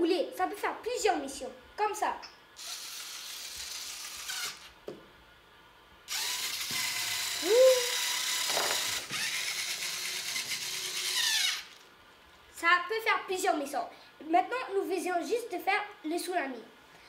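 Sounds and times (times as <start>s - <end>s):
small electric motors whining: 2.6s - 4.8s, 6.1s - 11.9s.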